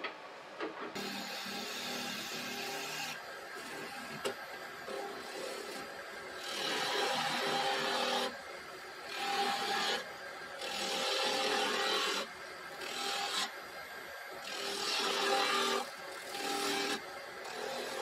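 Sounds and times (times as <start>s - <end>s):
lathe running: 4.9s - 8.3s, 9.1s - 13.6s, 14.4s - 18.0s
turning tool scraping wood: 4.9s - 8.3s, 14.5s - 18.0s.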